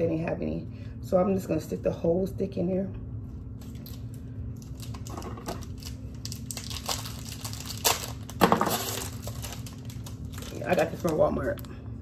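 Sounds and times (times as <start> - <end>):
plastic wrapper crinkling: 3.6 - 11.8.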